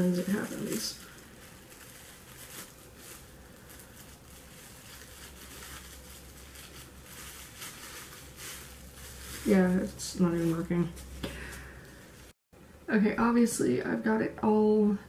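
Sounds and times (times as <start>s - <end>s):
plastic wrap crinkling: 0.0s - 11.2s.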